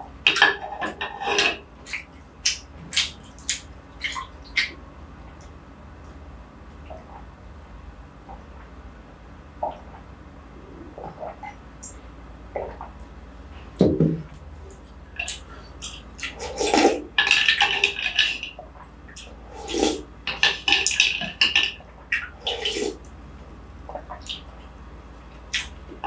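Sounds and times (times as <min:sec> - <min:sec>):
loud slurps: 0:16.3 - 0:17.0, 0:19.5 - 0:20.1, 0:22.4 - 0:23.0.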